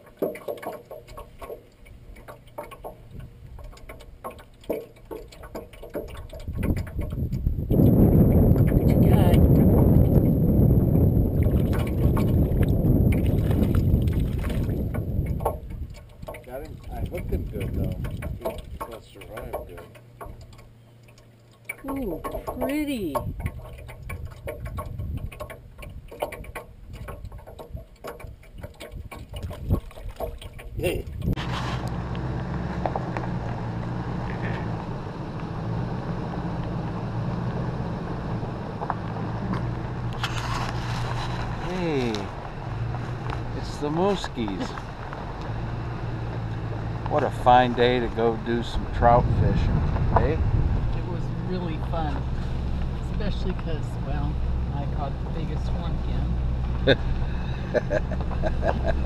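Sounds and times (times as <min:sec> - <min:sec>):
light clicks and knocks: 0:00.0 - 0:07.5, 0:11.5 - 0:31.4
steady low hum: 0:00.0 - 0:59.0
low rumble: 0:06.2 - 0:18.8, 0:30.7 - 0:59.0.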